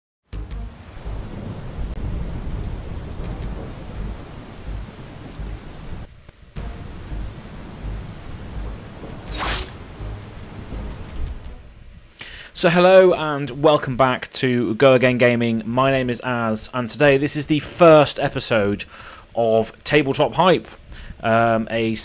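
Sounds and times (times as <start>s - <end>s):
steady rain: 0.4s - 22.0s
rumbling thunder: 0.8s - 11.8s
sharp thunder crack: 6.6s - 11.7s.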